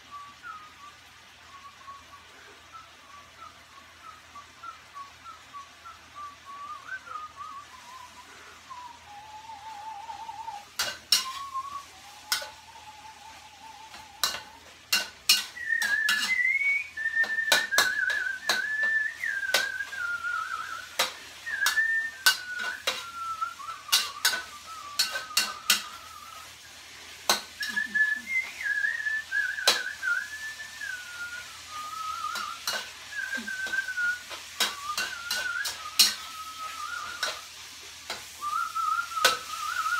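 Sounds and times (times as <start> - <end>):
person whistling a tune: 0.0 - 39.9
metal spatula clanking on wok: 10.8 - 11.5, 12.3 - 12.6, 14.2 - 16.4, 19.5 - 19.8, 21.0 - 23.1, 23.9 - 26.0, 27.3 - 27.9, 32.3 - 32.9, 34.6 - 36.4, 37.2 - 37.4.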